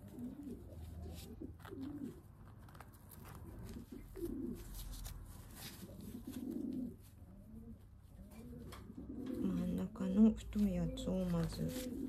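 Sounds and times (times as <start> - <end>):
bandage rustling and crinkling: 0.0 - 7.2, 10.5 - 12.0
pigeon cooing: 0.0 - 12.0.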